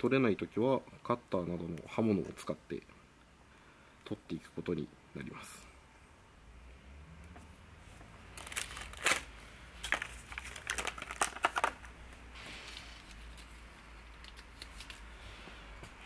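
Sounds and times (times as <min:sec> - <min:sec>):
plastic blister pack crinkling: 0:08.3 - 0:15.1.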